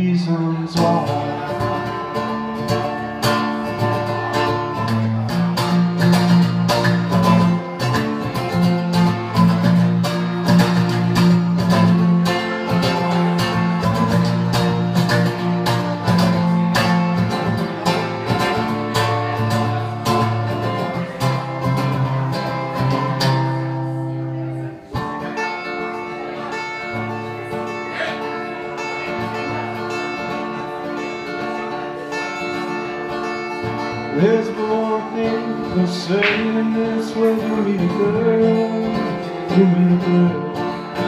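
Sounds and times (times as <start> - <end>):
acoustic guitar strumming: 0.0 - 41.0.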